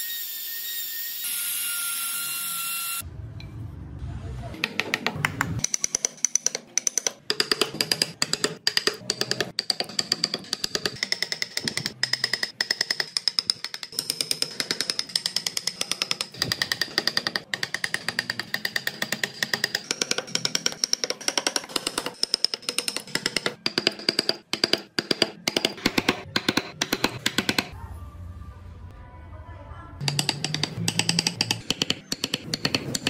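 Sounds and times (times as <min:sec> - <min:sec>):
chisel tapping into hardwood: 0:04.6 - 0:27.7, 0:30.0 - 0:33.0.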